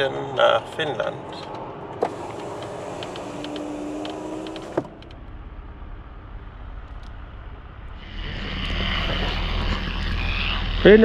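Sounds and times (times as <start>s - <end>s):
low rumble with hiss: 0.0s - 11.0s
small electric motor whirring: 2.0s - 4.9s, 8.0s - 11.0s.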